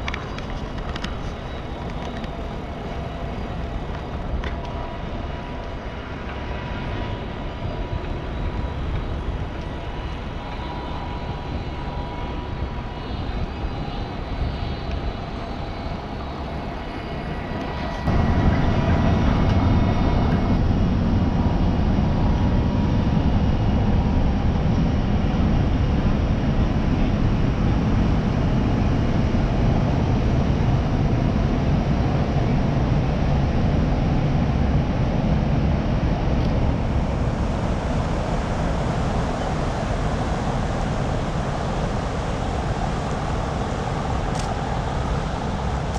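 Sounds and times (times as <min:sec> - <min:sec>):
ship engine rumble: 0:00.0 - 0:45.9
propeller wash: 0:36.1 - 0:45.9.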